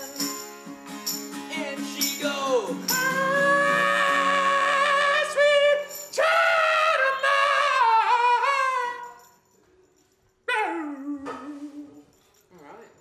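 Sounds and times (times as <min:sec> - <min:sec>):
man singing falsetto: 0:02.9 - 0:09.2, 0:10.5 - 0:12.0.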